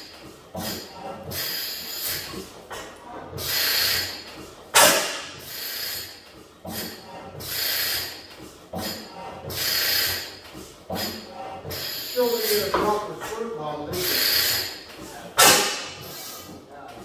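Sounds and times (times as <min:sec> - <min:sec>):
engine hissing puffs: 0:00.0 - 0:16.7.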